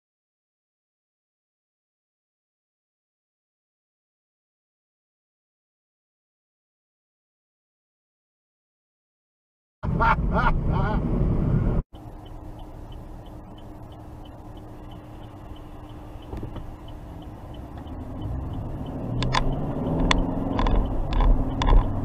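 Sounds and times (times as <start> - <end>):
car engine accelerating: 9.8 - 22.0
road noise in car: 9.8 - 22.0
car engine idling: 11.9 - 22.0
indicator ticking: 11.9 - 22.0.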